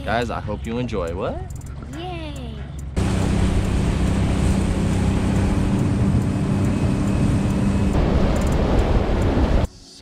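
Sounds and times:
outboard motor hum: 0:02.9 - 0:09.5
rushing wind and water: 0:03.0 - 0:09.7.

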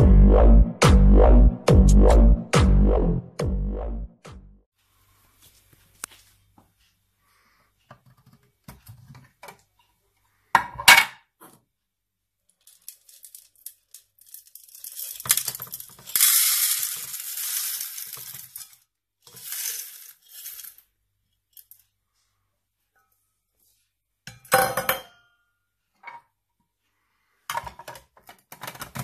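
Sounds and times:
coffee beans pouring into hopper: 0:14.2 - 0:20.8.

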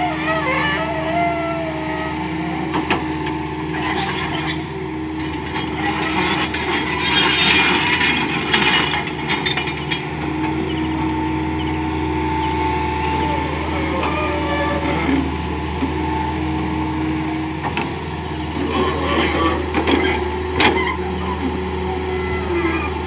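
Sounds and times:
diesel engine running under load: 0:00.0 - 0:23.0
steel tracks clanking and scraping: 0:03.7 - 0:10.8, 0:18.5 - 0:20.9.

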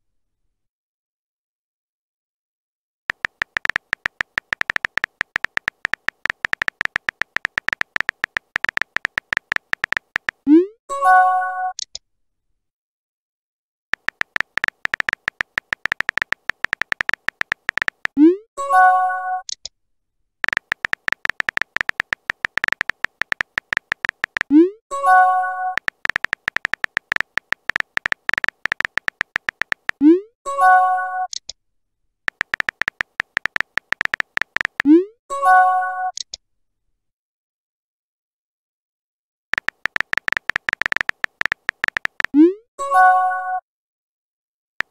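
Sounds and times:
phone keyboard typing clicks: 0:03.1 - 0:10.5, 0:14.0 - 0:18.2, 0:20.4 - 0:24.6, 0:25.7 - 0:30.1, 0:32.3 - 0:35.0, 0:39.6 - 0:42.4.

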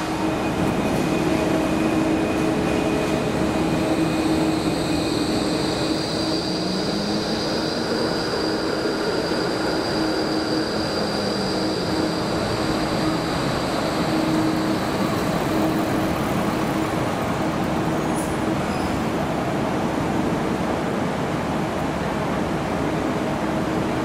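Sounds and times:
high whine: 0:00.0 - 0:18.5
tram rumbling on rails: 0:00.0 - 0:24.0.

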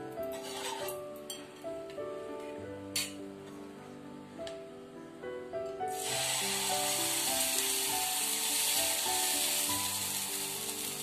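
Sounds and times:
background music with held notes: 0:00.0 - 0:11.0
batter sizzling on hot pan: 0:05.9 - 0:11.0.

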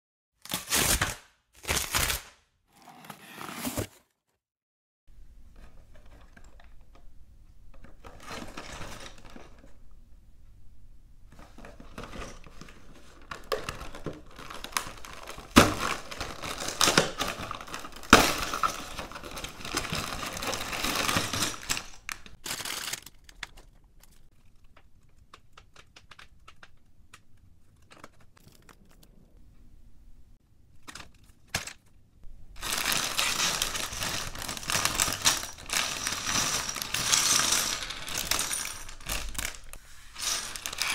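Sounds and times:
cardboard box crinkling and ripping: 0:00.5 - 0:02.2, 0:02.8 - 0:04.1, 0:13.2 - 0:23.2, 0:32.6 - 0:36.9
plastic bag crinkling: 0:12.0 - 0:26.8, 0:32.5 - 0:40.9.

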